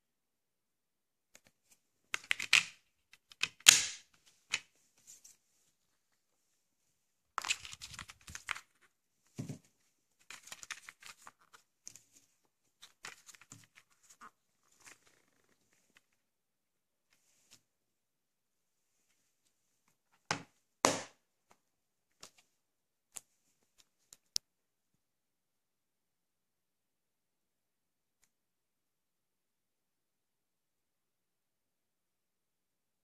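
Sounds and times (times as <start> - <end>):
paper rustling: 7.4 - 9.6, 10.2 - 16.2.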